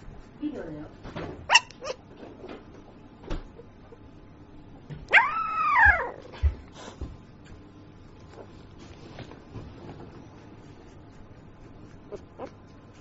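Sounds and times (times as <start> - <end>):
puppy yelping and howling: 5.1 - 6.4.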